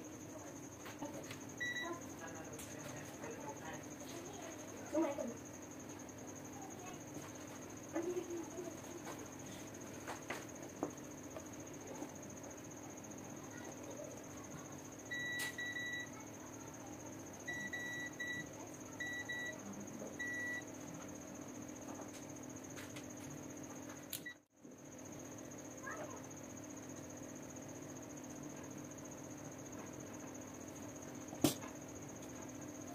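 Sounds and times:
multimeter beeps: 0:01.6 - 0:02.2, 0:15.1 - 0:16.2, 0:17.4 - 0:19.6, 0:20.2 - 0:20.7.

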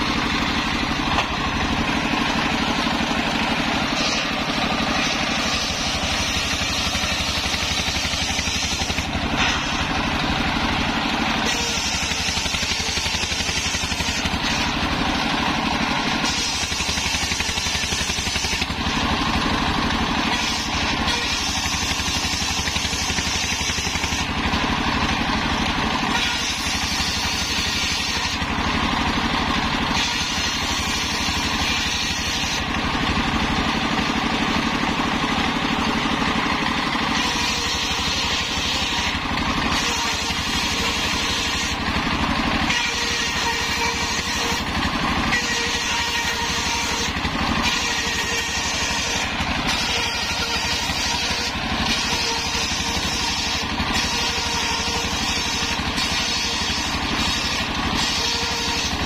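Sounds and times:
circular saw cutting wood: 0:00.0 - 0:59.0
diesel engine running: 0:00.0 - 0:59.0.

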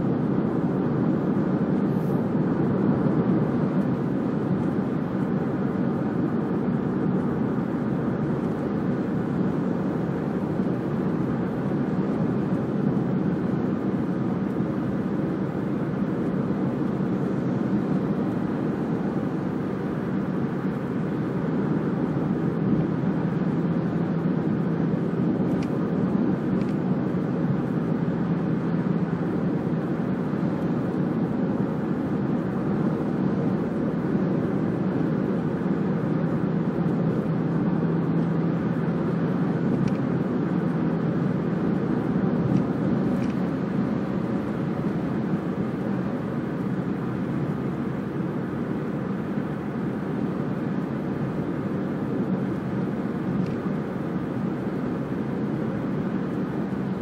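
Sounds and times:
car engine and tyre drone: 0:00.0 - 0:57.0.

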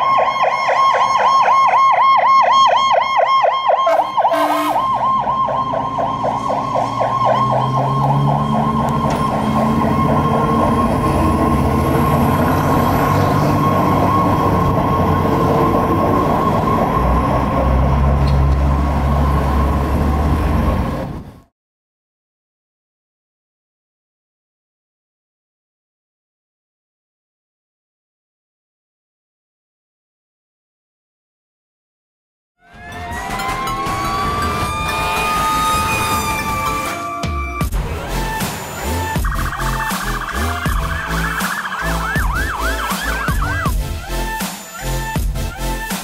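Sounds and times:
fire truck siren yelping: 0:00.0 - 0:21.2, 0:32.6 - 0:46.0
truck engine rumble: 0:00.0 - 0:21.5, 0:32.6 - 0:45.9
horn blast: 0:03.8 - 0:05.0, 0:32.6 - 0:45.0.

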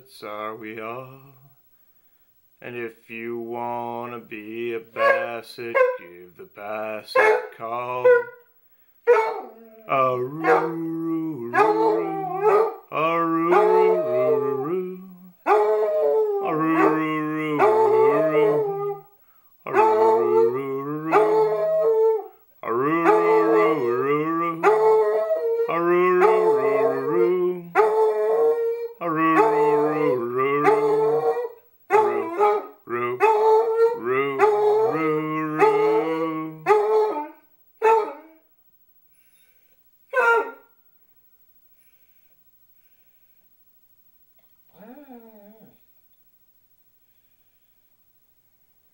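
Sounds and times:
man singing: 0:00.0 - 0:01.6, 0:02.6 - 0:08.3, 0:09.8 - 0:15.5, 0:16.4 - 0:19.0, 0:19.6 - 0:21.9, 0:22.6 - 0:25.0, 0:25.6 - 0:28.0, 0:28.9 - 0:36.7
dog howling: 0:09.1 - 0:19.1, 0:19.7 - 0:38.4, 0:44.7 - 0:45.8.

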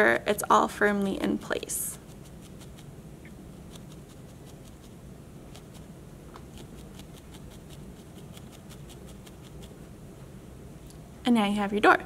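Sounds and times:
felting needle clicking through wool: 0:06.4 - 0:09.7.

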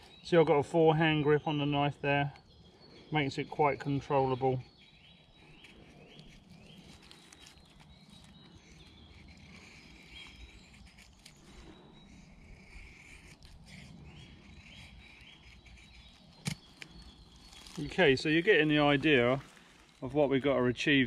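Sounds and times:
birds singing: 0:00.0 - 0:21.0
knife scraping wood: 0:03.9 - 0:20.1.

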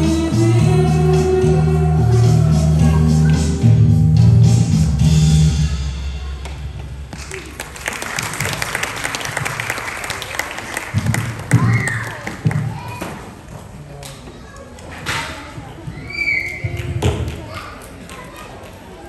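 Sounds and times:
audience applause: 0:07.2 - 0:12.7.

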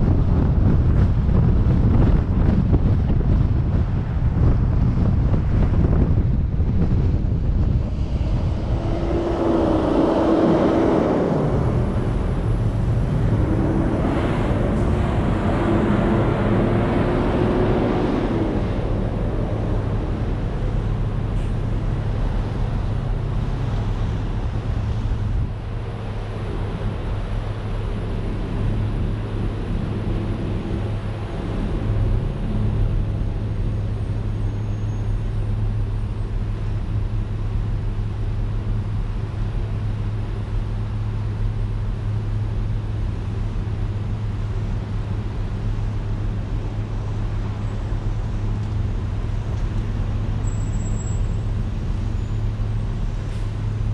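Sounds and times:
car road and engine noise: 0:00.0 - 0:53.9
engine idling hum: 0:00.0 - 0:53.9
wavering whine: 0:05.9 - 0:36.4.

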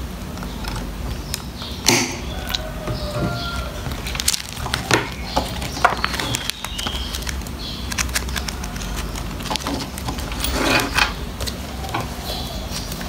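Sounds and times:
plastic sleeves crinkling: 0:03.4 - 0:13.0.

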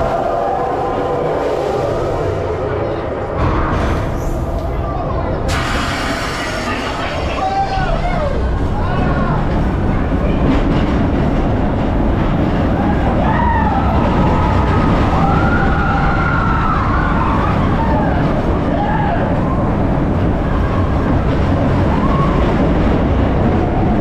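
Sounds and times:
roller coaster rumbling on track: 0:00.0 - 0:24.0
riders screaming: 0:12.8 - 0:19.7.

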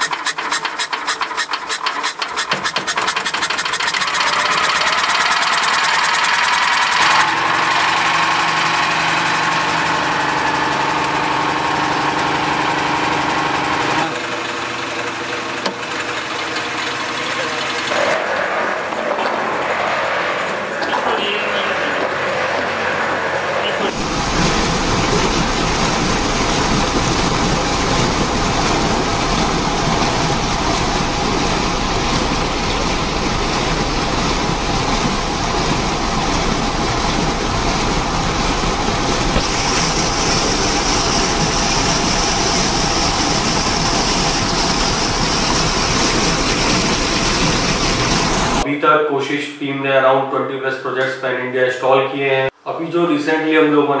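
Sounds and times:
electric motor running: 0:03.7 - 0:18.2.

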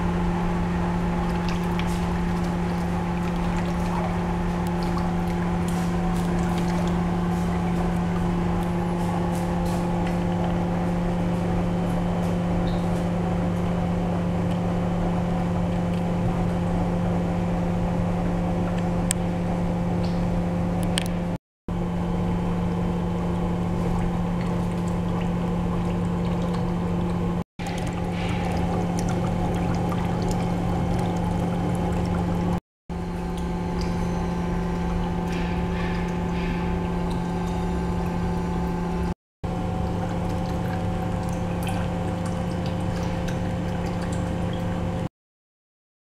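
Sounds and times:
pump humming: 0:00.0 - 0:45.1
water flowing and pouring: 0:01.0 - 0:10.7, 0:23.3 - 0:39.0, 0:39.6 - 0:45.1.

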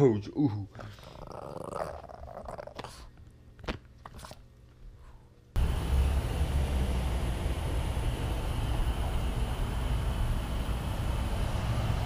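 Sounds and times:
loud steady rumble and hiss: 0:05.6 - 0:12.0.

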